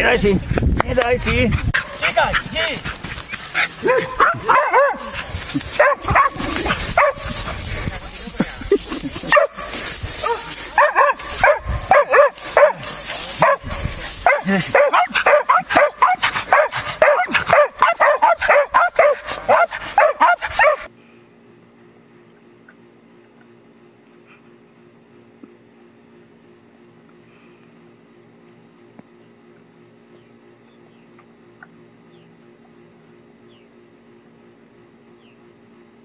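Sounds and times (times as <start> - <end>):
faint steady hum: 0.0 - 36.0
dogs barking and yipping: 1.5 - 8.2, 8.9 - 20.9.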